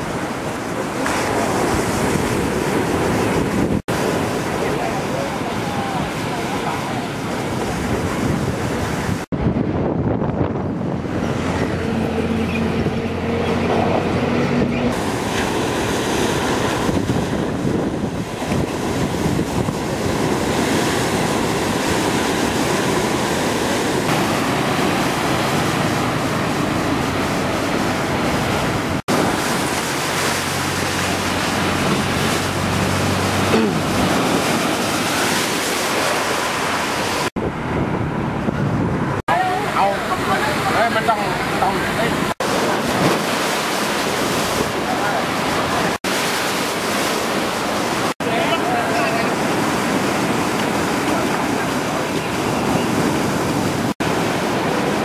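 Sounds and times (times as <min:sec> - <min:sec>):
wind buffeting microphone: 0:00.0 - 0:39.3
waves crashing over seawall: 0:00.0 - 0:55.0.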